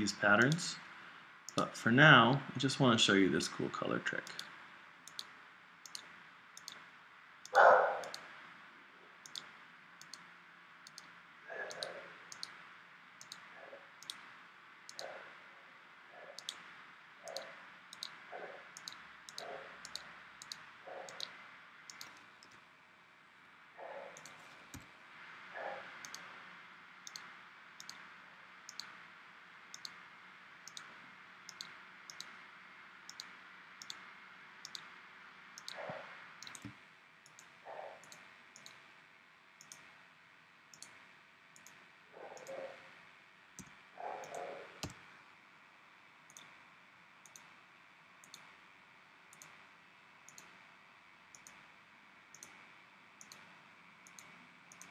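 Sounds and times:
computer mouse clicking: 0:01.5 - 0:01.7, 0:04.2 - 0:08.3, 0:09.2 - 0:12.6, 0:13.2 - 0:14.3, 0:14.9 - 0:15.2, 0:16.4 - 0:22.6, 0:24.2 - 0:24.9, 0:26.0 - 0:26.3, 0:27.0 - 0:28.1, 0:28.7 - 0:29.0, 0:29.7 - 0:30.0, 0:30.6 - 0:30.9, 0:31.5 - 0:32.4, 0:33.1 - 0:34.9, 0:35.6 - 0:38.8, 0:39.6 - 0:39.9, 0:40.7 - 0:41.0, 0:41.6 - 0:41.8, 0:42.4 - 0:42.9, 0:43.6 - 0:45.0, 0:46.3 - 0:46.6, 0:47.2 - 0:47.5, 0:48.2 - 0:48.5, 0:49.3 - 0:49.6, 0:50.3 - 0:50.6, 0:51.3 - 0:51.6, 0:52.3 - 0:52.6, 0:53.2 - 0:54.9.

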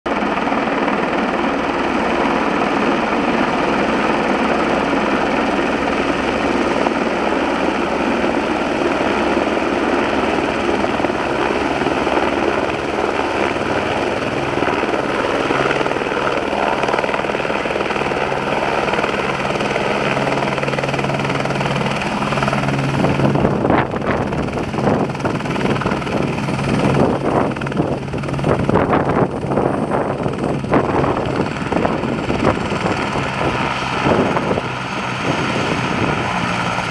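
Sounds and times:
helicopter rotor and turbine: 0:00.1 - 0:36.9.

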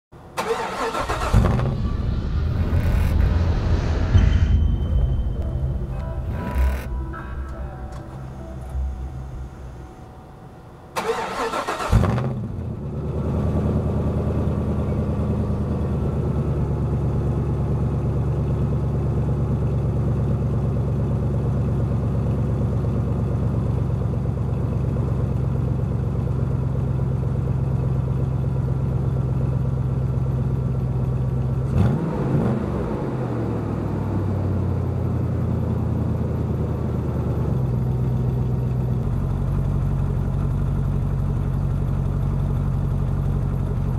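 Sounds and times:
engine idling: 0:00.2 - 0:04.2, 0:05.4 - 0:31.7, 0:34.0 - 0:43.9
engine cranking: 0:00.4 - 0:01.9, 0:11.0 - 0:12.3
engine throttle blip: 0:00.4 - 0:12.7.

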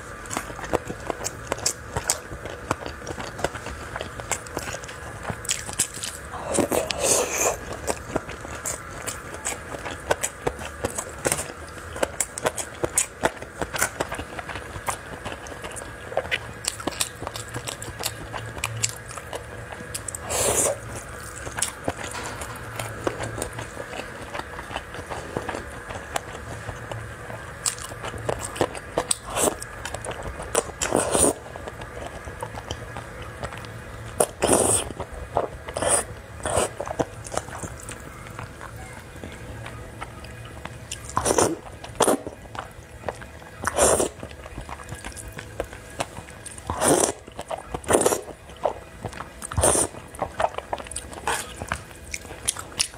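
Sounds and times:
wet chewing and mouth clicks: 0:00.1 - 0:52.9
slurping noodles: 0:05.6 - 0:10.0, 0:20.0 - 0:22.1, 0:29.0 - 0:31.5, 0:34.2 - 0:37.9, 0:41.0 - 0:42.3, 0:43.6 - 0:44.9, 0:46.5 - 0:48.8, 0:49.4 - 0:52.7.

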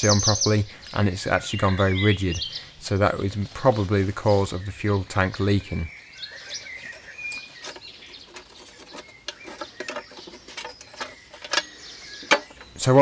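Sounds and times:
faint bird chirps: 0:04.2 - 0:13.0
hands clicking and tapping metal: 0:06.9 - 0:12.8.

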